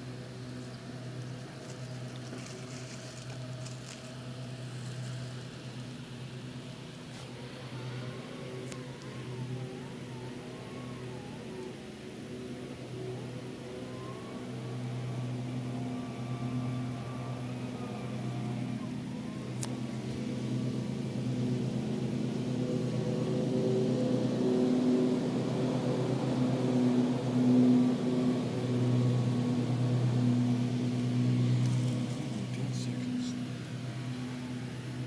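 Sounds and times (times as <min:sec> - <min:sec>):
engine humming: 0:00.0 - 0:35.0.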